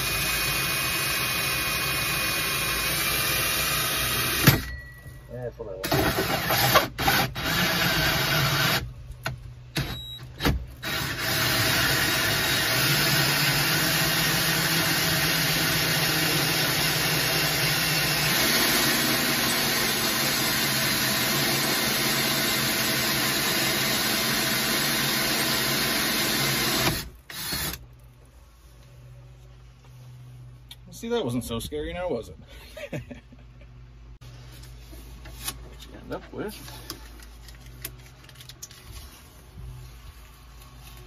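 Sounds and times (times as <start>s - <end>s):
cordless drill cutting with hole saw: 0.0s - 4.6s, 5.8s - 8.9s, 10.8s - 27.8s.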